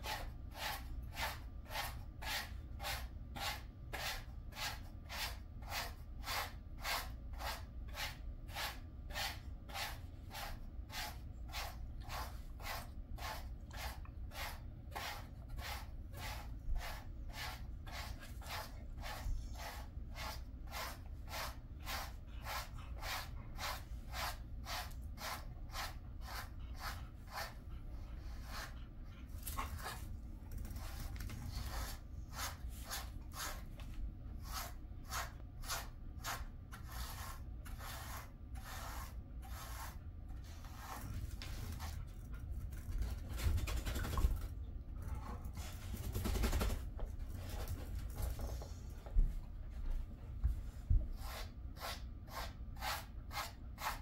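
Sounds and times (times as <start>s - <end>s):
brush swishing through fur: 30.8s - 42.0s.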